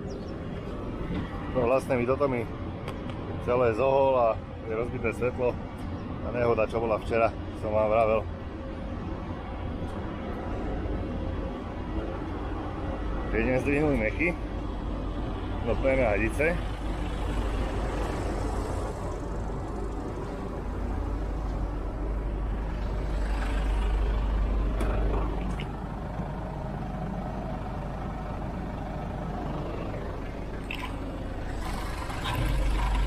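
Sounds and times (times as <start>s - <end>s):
diesel engine idling: 7.4s - 33.0s.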